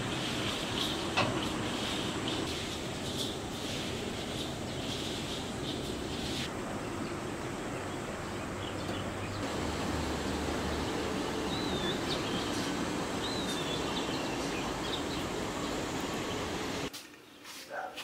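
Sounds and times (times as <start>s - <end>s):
steady background hiss: 0.0s - 17.9s
bird chirps: 11.5s - 16.6s.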